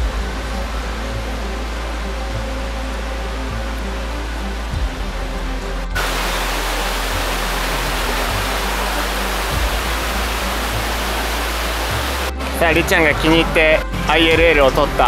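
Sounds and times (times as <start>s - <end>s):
waterfall rushing: 6.0s - 12.7s.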